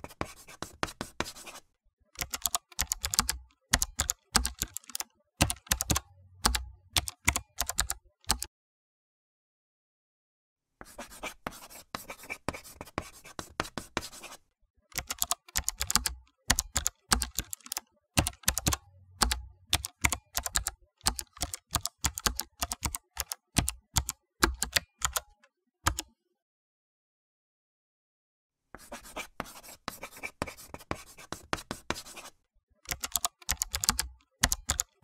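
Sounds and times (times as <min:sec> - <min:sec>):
typing on computer keyboard: 0:02.2 - 0:08.5, 0:14.9 - 0:26.1, 0:30.1 - 0:35.0.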